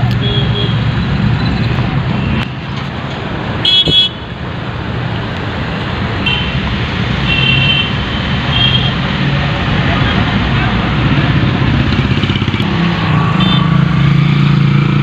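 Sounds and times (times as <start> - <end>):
engine and road hum: 0.0 - 15.0
car horn honking: 3.6 - 4.3, 6.2 - 6.6, 7.2 - 9.0, 13.4 - 13.7.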